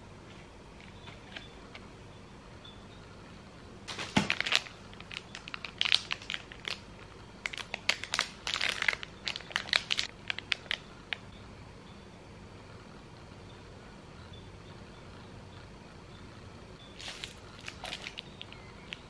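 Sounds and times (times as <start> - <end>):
packaging crinkling: 3.9 - 11.2, 17.0 - 19.0.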